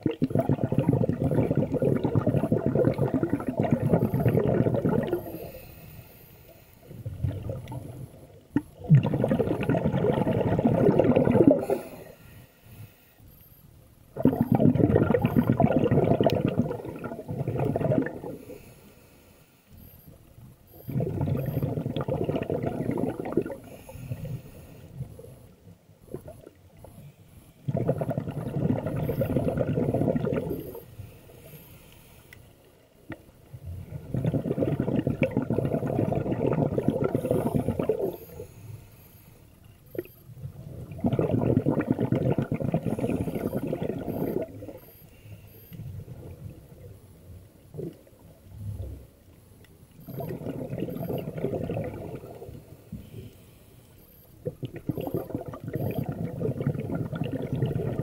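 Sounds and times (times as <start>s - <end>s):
exhaled bubbles rising: 0.0s - 5.4s, 6.9s - 11.8s, 14.1s - 18.4s, 20.8s - 24.3s, 27.7s - 30.8s, 33.1s - 38.4s, 39.9s - 44.8s, 50.0s - 52.6s, 54.4s - 58.0s
diver breathing through regulator: 5.1s - 7.0s, 11.6s - 13.2s, 23.6s - 25.2s, 29.0s - 32.5s, 37.0s - 39.5s, 42.7s - 45.8s.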